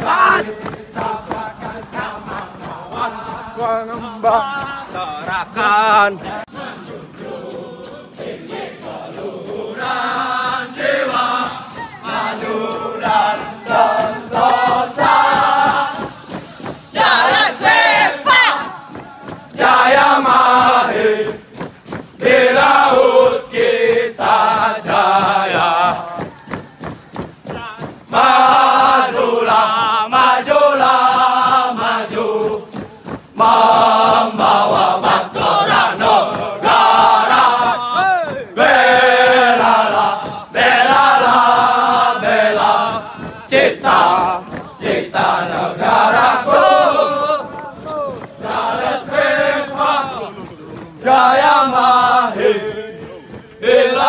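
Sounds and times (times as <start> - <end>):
men singing cadence in unison: 0.0 - 21.5, 22.2 - 26.3, 27.6 - 54.0
group chanting running song: 0.0 - 54.0.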